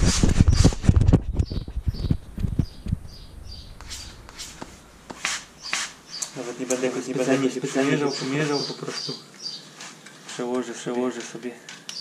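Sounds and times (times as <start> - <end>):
small bird chirping: 1.3 - 4.6, 5.6 - 6.4, 8.0 - 9.8.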